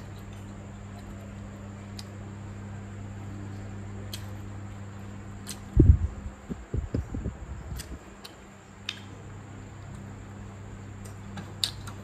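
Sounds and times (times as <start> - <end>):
steady low hum: 0.0 - 12.0
soft low thumps: 5.8 - 7.5.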